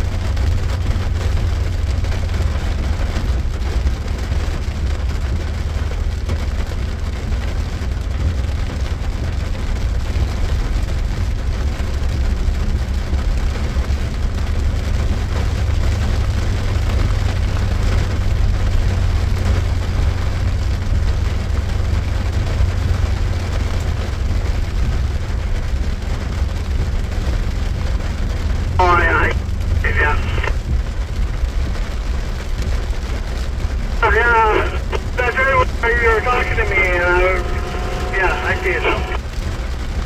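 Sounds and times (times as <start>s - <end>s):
rain and tyres on wet road: 0.0s - 40.0s
truck engine rumble: 21.9s - 32.2s, 33.6s - 40.0s.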